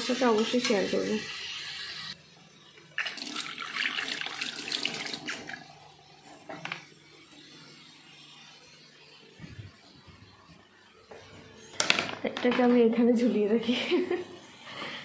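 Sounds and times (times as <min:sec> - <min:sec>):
tap water running into sink: 0:03.0 - 0:05.7.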